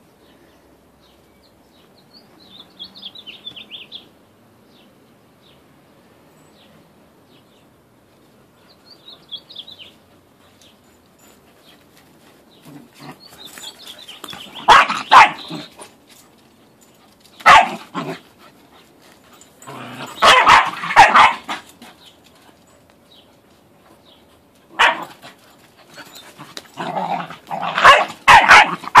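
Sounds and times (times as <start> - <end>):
young dogs barking: 14.4 - 15.7, 17.4 - 18.2, 19.7 - 21.7, 24.7 - 25.4, 26.4 - 29.0.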